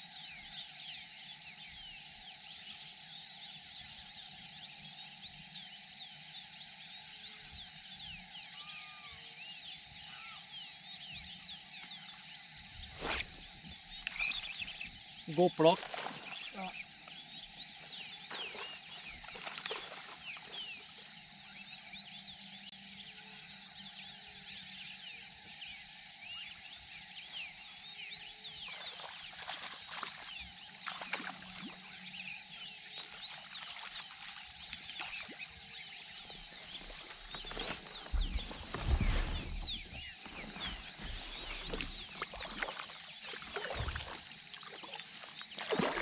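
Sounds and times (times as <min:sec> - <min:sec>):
birds chirping: 0:00.0 - 0:46.0
fish thrashing and splashing: 0:18.3 - 0:20.6, 0:40.8 - 0:46.0.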